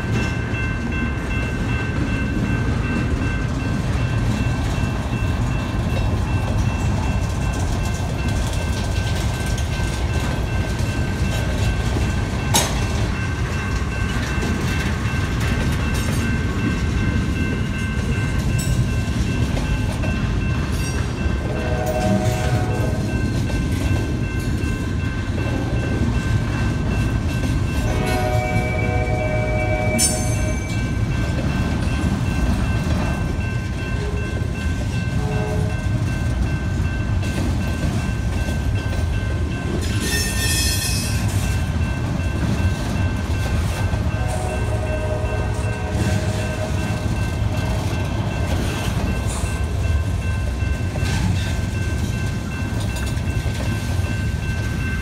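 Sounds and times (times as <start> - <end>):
train cars rumbling: 0.0 - 55.0
train horn: 21.4 - 23.1, 27.8 - 30.7, 35.1 - 35.8, 44.1 - 47.1.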